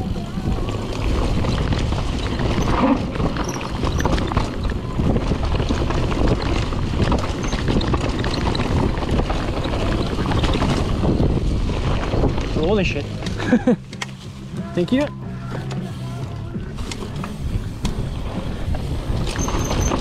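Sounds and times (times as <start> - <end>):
wind on microphone: 0.0 - 12.8
bike clattering and rattling: 0.0 - 20.0
bike tyres rushing on dirt: 0.0 - 20.0.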